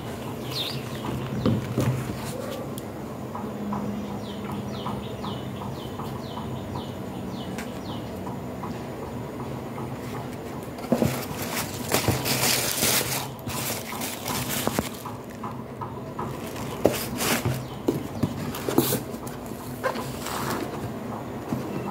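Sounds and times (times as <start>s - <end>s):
tissue paper rustling: 11.0s - 15.0s, 16.4s - 17.6s.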